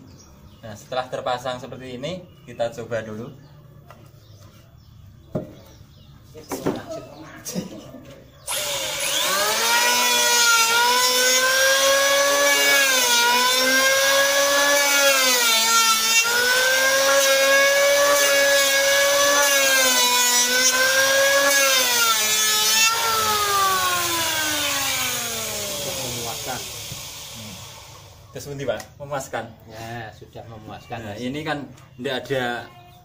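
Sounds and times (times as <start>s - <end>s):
electric planer planing wood: 8.5s - 28.2s.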